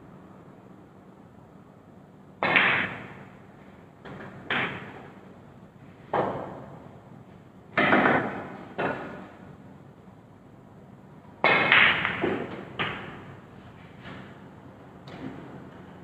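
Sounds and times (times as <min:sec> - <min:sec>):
cue striking ball: 0:02.4 - 0:03.2, 0:04.1 - 0:05.1, 0:06.1 - 0:06.7, 0:07.8 - 0:09.3, 0:11.4 - 0:13.3
snooker balls clicking: 0:07.8 - 0:09.3, 0:11.4 - 0:13.3.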